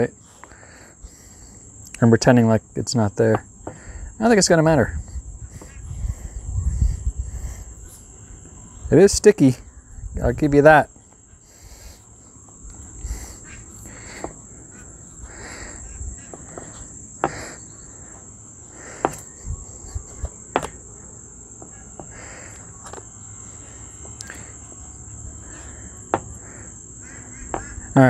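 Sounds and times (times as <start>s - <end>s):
crickets chirring: 0.0s - 28.0s
hands pressing dough on wooden board: 20.5s - 20.8s.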